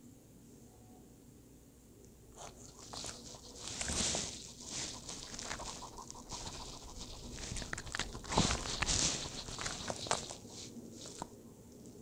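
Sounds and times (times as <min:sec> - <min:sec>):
dog sniffing: 0:02.4 - 0:11.3
dog crunching vegetables: 0:02.4 - 0:12.0.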